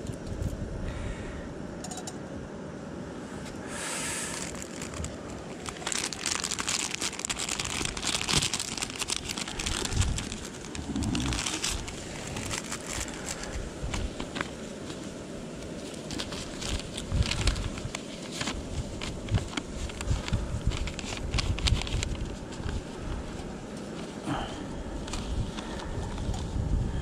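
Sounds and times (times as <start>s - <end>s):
plastic bag crinkling: 4.2s - 24.2s.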